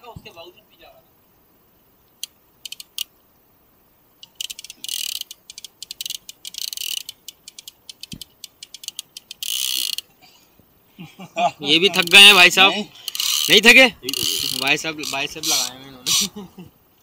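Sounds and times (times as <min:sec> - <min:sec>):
fishing reel clicking and buzzing: 0:02.2 - 0:03.1, 0:04.2 - 0:10.1, 0:11.9 - 0:16.3.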